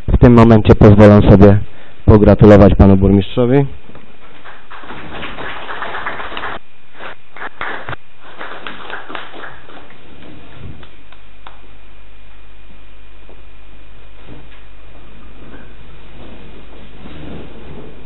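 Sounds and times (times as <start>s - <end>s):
low steady hum: 0.0s - 18.0s
small group applauding: 4.4s - 10.0s.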